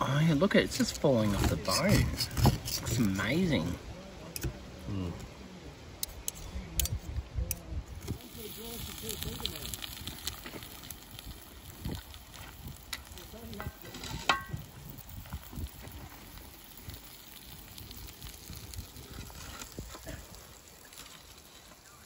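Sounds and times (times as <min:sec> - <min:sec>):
utensil clinking and scraping plates: 0:13.6 - 0:14.6.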